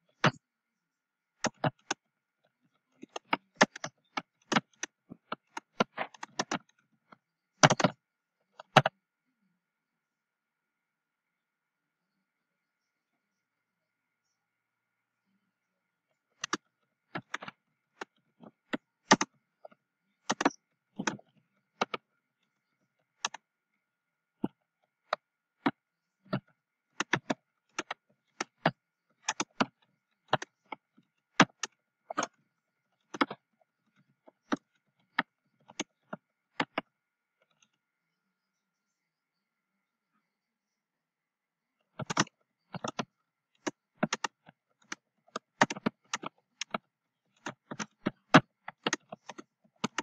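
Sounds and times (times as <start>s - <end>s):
keyboard key clicks: 7.6s - 8.0s, 18.7s - 19.3s, 20.3s - 21.2s, 27.0s - 30.8s, 33.1s - 33.4s, 42.0s - 46.8s, 47.4s - 50.0s.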